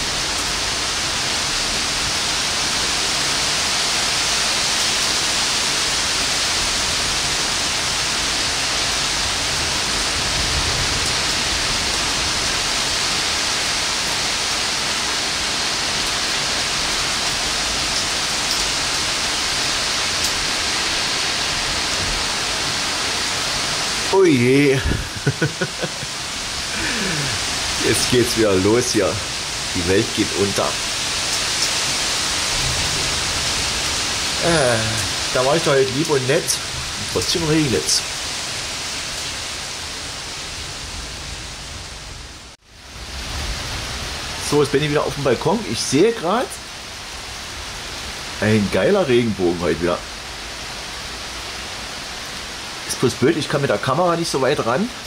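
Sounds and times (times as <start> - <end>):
heavy rain: 0.0 - 55.0.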